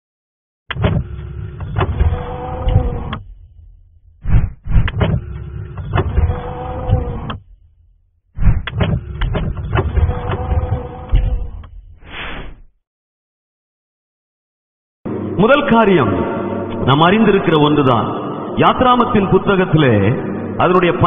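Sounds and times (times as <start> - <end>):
mechanical whirring with clicks: 0.7 - 3.4, 4.2 - 7.7, 8.4 - 12.0.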